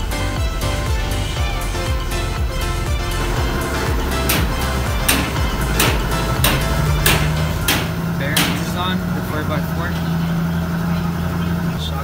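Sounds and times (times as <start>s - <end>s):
background music with steady beat: 0.0s - 9.0s
sliding deep bass line: 0.0s - 10.0s.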